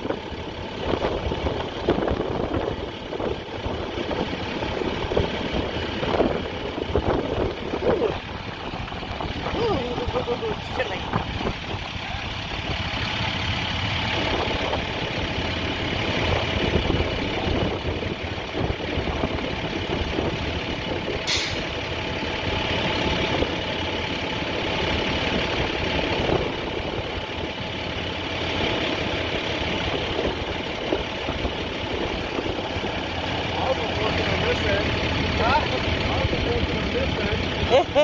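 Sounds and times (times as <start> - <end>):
fire truck engines idling: 0.0 - 38.0.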